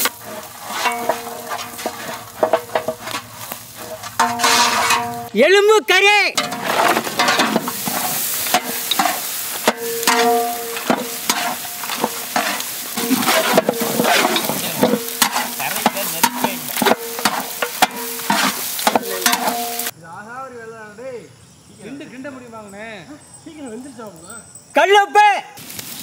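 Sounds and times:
meat sizzling in oil: 0.0 - 5.3, 6.5 - 19.9, 25.6 - 26.0
ladle clattering and scraping: 0.0 - 5.4, 6.3 - 19.9.

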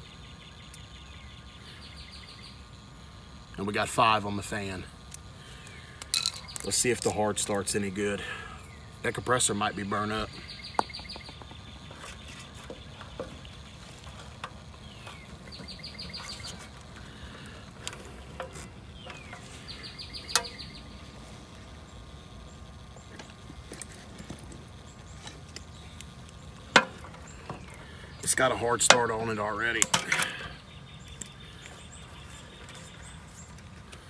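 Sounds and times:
insects chirping in trills: 0.0 - 34.0
low steady hum: 0.0 - 34.0.

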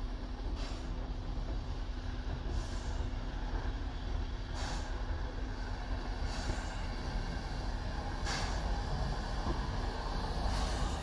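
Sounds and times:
steam locomotive rumble: 0.0 - 11.0
sharp hisses of steam: 0.5 - 1.0, 2.4 - 3.7, 4.5 - 11.0.

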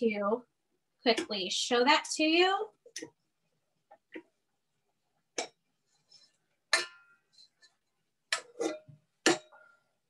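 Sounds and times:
metal bowl clanking: 6.7 - 7.6.

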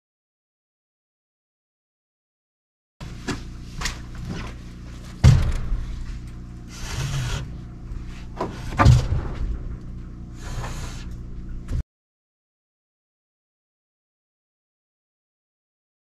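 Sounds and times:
steady low hum: 3.0 - 11.8
boards scraping over rafters: 6.7 - 7.6.

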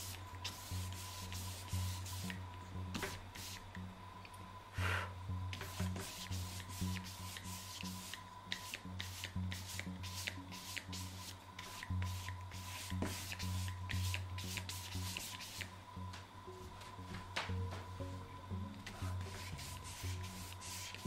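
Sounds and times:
paintbrush scrubbing paper: 0.0 - 2.4, 5.6 - 15.7, 19.2 - 21.0.

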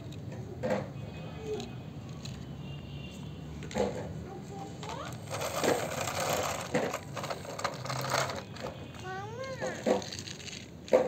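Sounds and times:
toy wheels rolling on concrete: 1.4 - 2.7, 3.6 - 11.0.

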